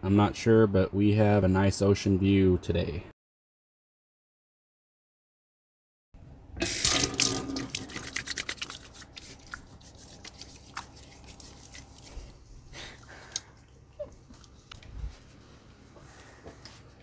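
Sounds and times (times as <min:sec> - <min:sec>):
faucet water running into sink: 0:06.6 - 0:08.6
water splashes and drips: 0:06.6 - 0:10.8.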